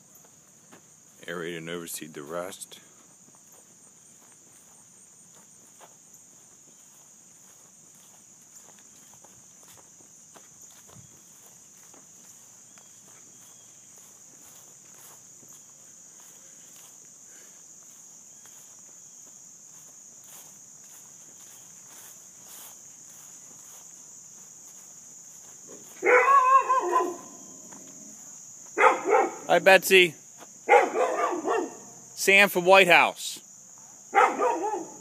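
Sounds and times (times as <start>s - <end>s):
footsteps on grass and dirt: 0.0s - 33.9s
insects trilling: 0.0s - 35.0s
dog barking: 26.0s - 27.4s, 28.8s - 29.5s, 30.6s - 32.0s, 34.1s - 35.0s.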